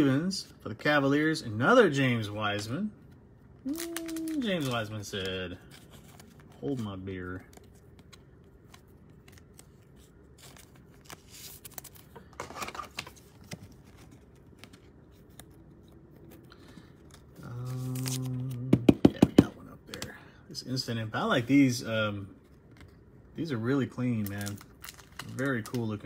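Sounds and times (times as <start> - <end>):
cards sliding and scraping: 5.6 - 18.4
man humming: 17.4 - 19.0.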